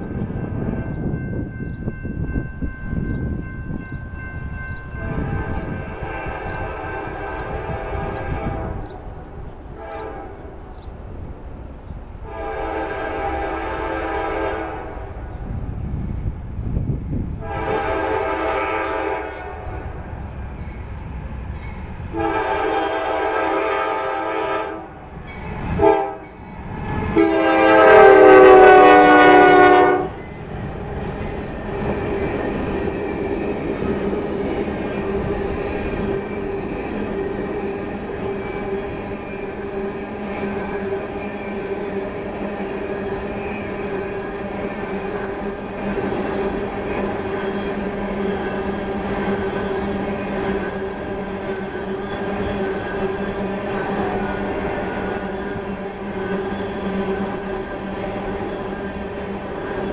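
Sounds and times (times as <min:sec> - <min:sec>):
train wheels rumbling on rail: 0:00.0 - 0:59.9
locomotive air horn blasts: 0:05.0 - 0:08.9, 0:09.8 - 0:10.5, 0:12.2 - 0:15.1, 0:17.4 - 0:19.8, 0:22.2 - 0:25.0, 0:25.8 - 0:26.3, 0:27.1 - 0:30.2.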